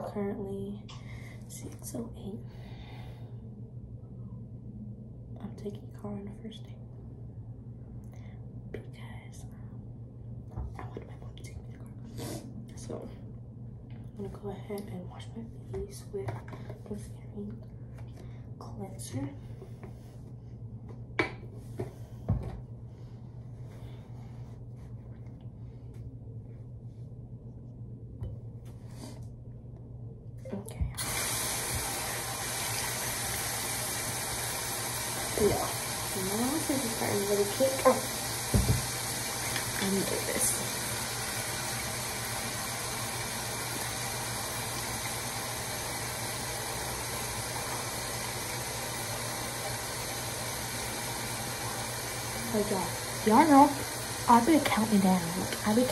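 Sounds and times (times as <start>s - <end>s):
steady low hum: 0.0s - 55.9s
tap running into sink: 37.8s - 40.0s
bottle knocking on counter: 38.5s - 38.9s.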